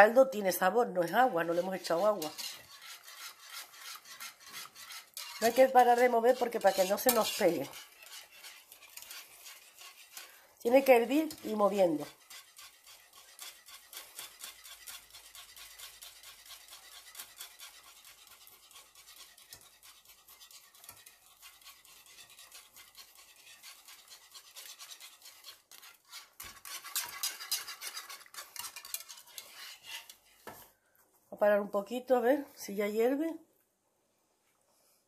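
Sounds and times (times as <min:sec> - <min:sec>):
whisk scraping a pot: 0:00.0 - 0:30.8.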